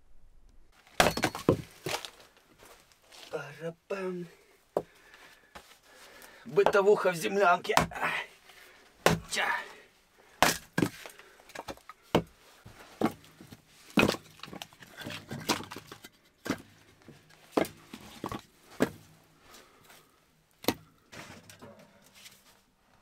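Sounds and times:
hatchet splitting wood: 1.0 - 2.0, 9.0 - 9.4, 10.4 - 12.3
wood pieces knocking together: 13.9 - 16.7.

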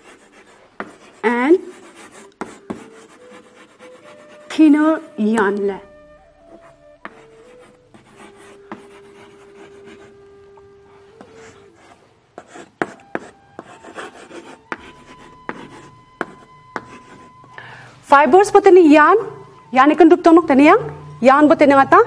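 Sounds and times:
chalk tapping on board: 0.0 - 4.5, 6.5 - 10.0, 11.2 - 17.3
chalk scratching on chalkboard: 0.0 - 5.4, 6.5 - 10.3, 10.9 - 17.5.

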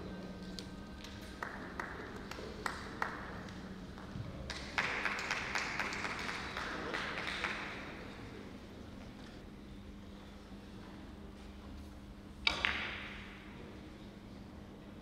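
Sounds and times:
audience applause: 1.4 - 3.3, 3.9 - 7.8.

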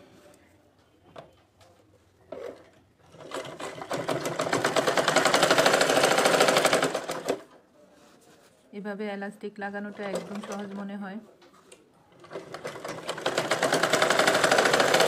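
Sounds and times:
sewing machine stitching: 2.3 - 7.6, 9.9 - 10.8, 12.2 - 15.0.

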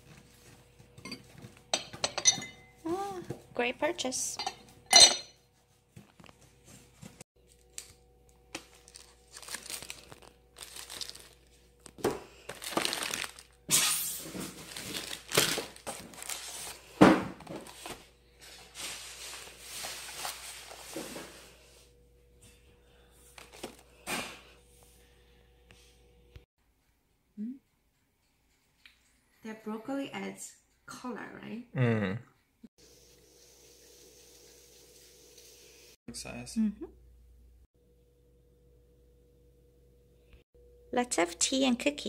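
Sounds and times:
packaging crinkling and tearing: 7.5 - 16.8.

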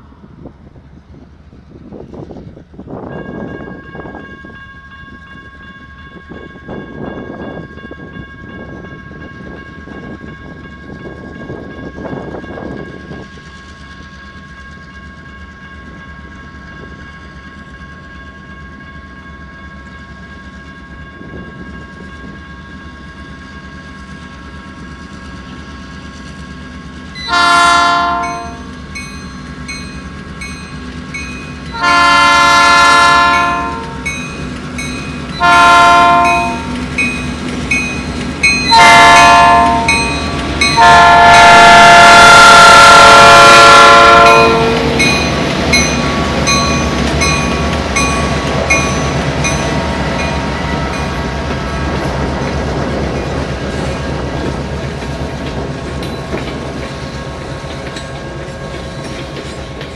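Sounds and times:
locomotive engine drone: 7.9 - 59.9
multi-chime air horn blast: 35.4 - 36.8, 38.6 - 45.3.

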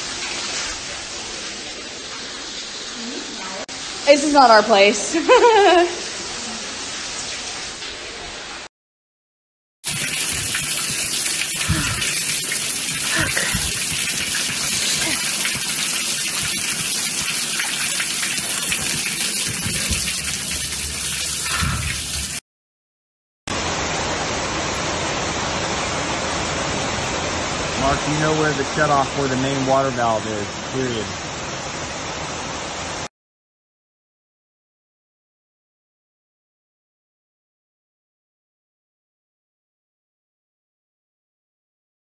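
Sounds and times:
water gushing from burst pipes: 9.8 - 22.4.

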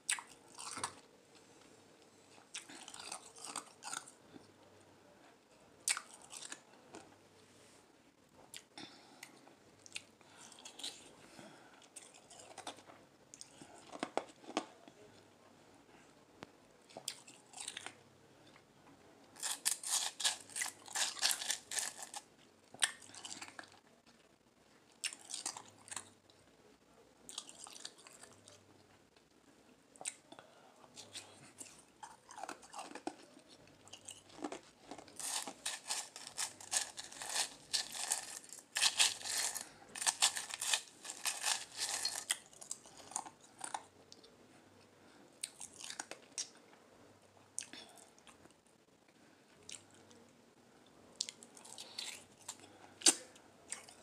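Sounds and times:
ice being crunched and chewed: 2.4 - 4.2, 19.4 - 23.8, 31.0 - 43.8.

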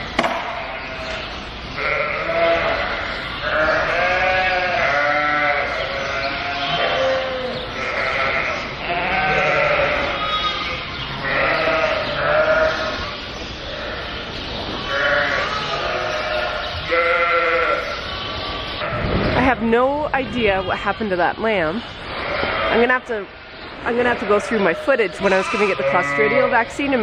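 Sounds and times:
lambs and ewes bleating: 0.5 - 13.1, 13.7 - 19.6, 22.2 - 23.2, 23.9 - 27.0.

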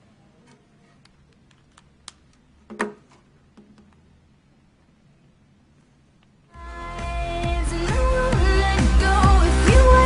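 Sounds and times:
music from speaker: 6.6 - 10.0.

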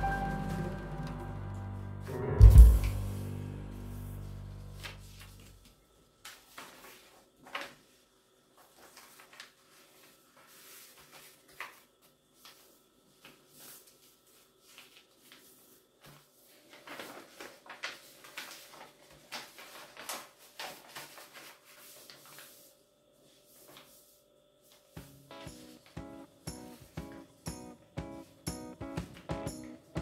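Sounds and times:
paper rustling and crinkling: 4.6 - 26.0.

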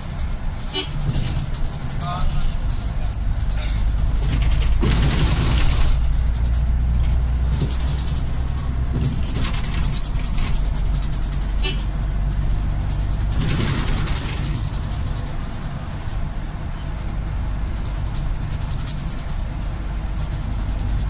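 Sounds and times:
vehicle engine and road rumble: 0.0 - 21.0.

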